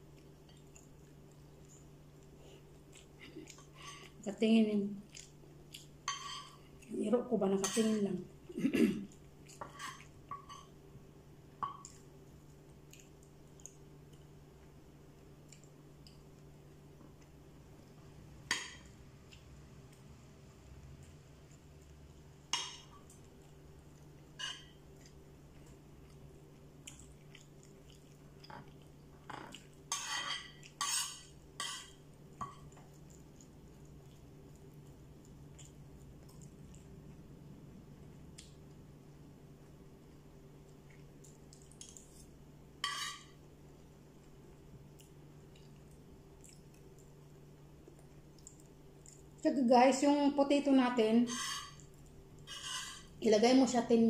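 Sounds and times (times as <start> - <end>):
low steady hum: 0.0 - 54.0
metal spoon scraping a plate: 42.8 - 43.3, 51.2 - 51.8, 52.5 - 53.1
eating sounds: 44.9 - 49.4.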